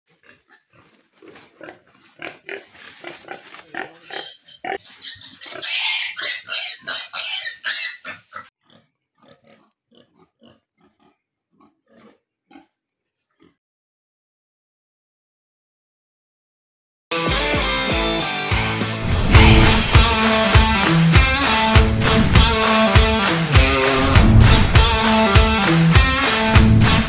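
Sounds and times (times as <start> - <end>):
piglets grunting and squealing: 0.1 - 13.6.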